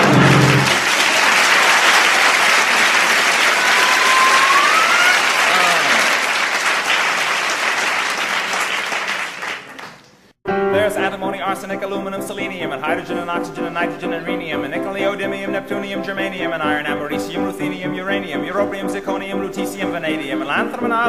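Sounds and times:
audience applauding: 0.0 - 10.4
whistle rising in pitch: 3.6 - 5.4.

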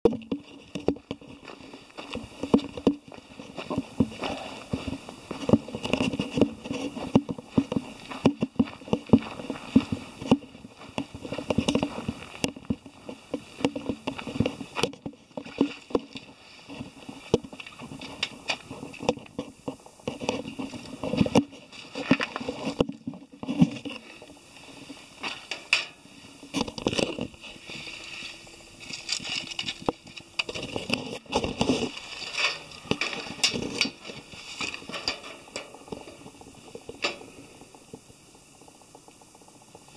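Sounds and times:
footsteps on pavement: 1.0 - 14.8.

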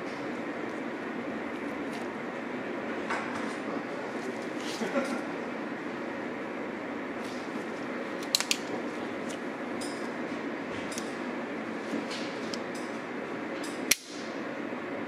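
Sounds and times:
pistol handling clicks and rubbing: 8.2 - 8.7.

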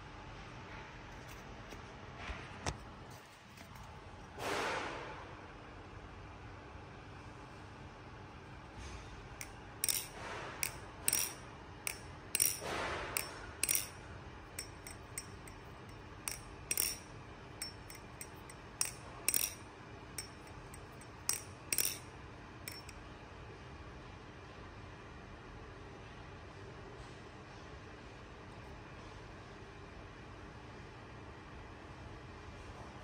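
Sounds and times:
butterfly knife metal clicks: 9.8 - 13.9, 16.3 - 17.0, 17.6 - 19.6, 21.3 - 22.0.

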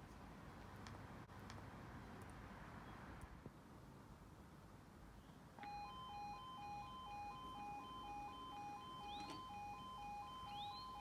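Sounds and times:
level crossing two-tone alarm: 5.6 - 11.0.

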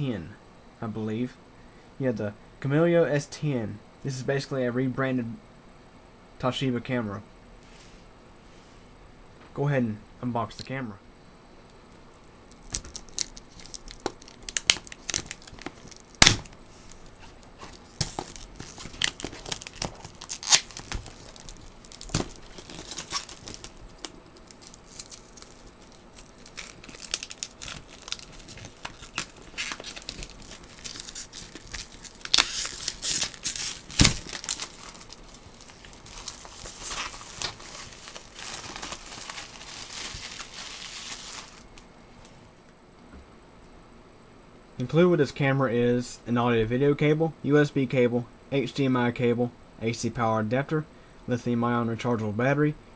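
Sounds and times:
plastic shrink wrap tearing: 12.5 - 41.8.

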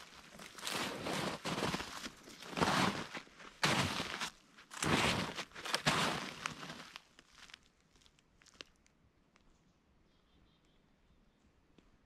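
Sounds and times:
footsteps crunching through snow: 0.0 - 7.7.

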